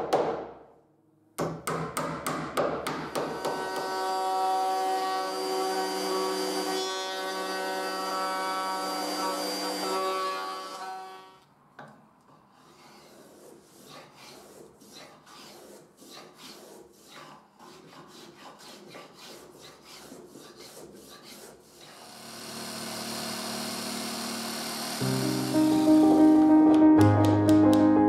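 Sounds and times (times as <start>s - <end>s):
electric planer hissing: 3.2s - 11.3s, 21.9s - 26.7s
hand plane shaving wood: 12.5s - 22.0s.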